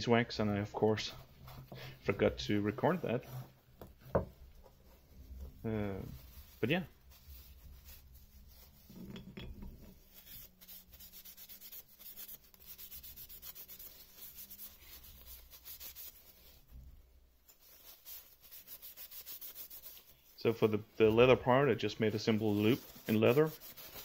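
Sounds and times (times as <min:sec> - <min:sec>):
rag wiping wood: 0:17.5 - 0:24.0.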